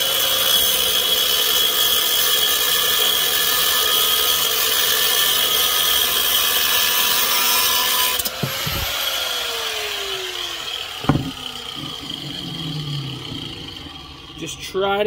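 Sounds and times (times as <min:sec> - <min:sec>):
angle grinder cutting metal: 0:00.0 - 0:14.6
knocks: 0:08.4 - 0:09.0, 0:11.0 - 0:12.3
grinder disc spinning down: 0:08.4 - 0:15.0.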